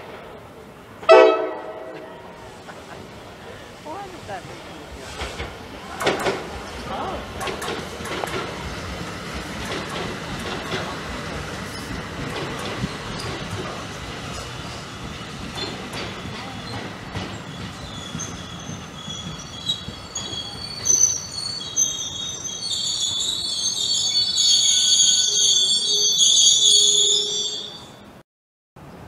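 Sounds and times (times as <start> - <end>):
train rumbling past: 0.0 - 28.2
high-pitched wheel squeal: 17.5 - 28.0.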